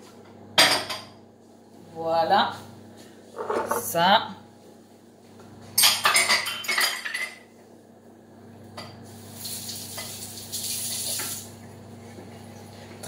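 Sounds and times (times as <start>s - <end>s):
dishes and utensils clattering: 0.6s - 1.2s, 3.4s - 3.9s, 5.8s - 7.4s.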